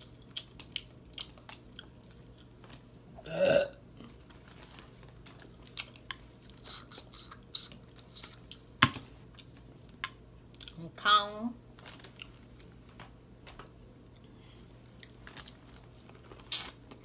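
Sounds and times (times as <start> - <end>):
chewing: 0.0 - 2.8, 4.0 - 8.6
loud burp: 3.2 - 3.8.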